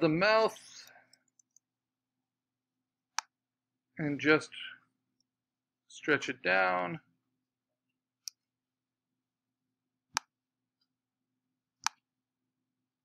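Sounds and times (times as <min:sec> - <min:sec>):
computer mouse clicks: 0:11.8 - 0:12.0.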